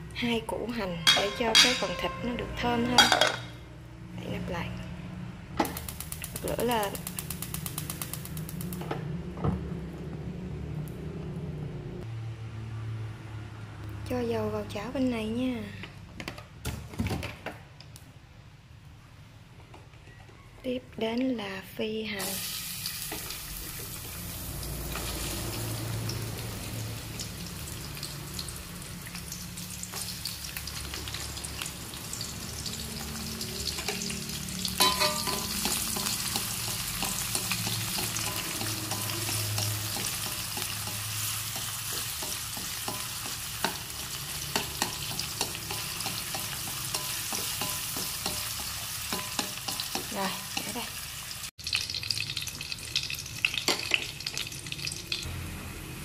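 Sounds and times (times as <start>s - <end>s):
shallots sizzling in oil: 5.7s - 8.8s, 22.2s - 56.0s.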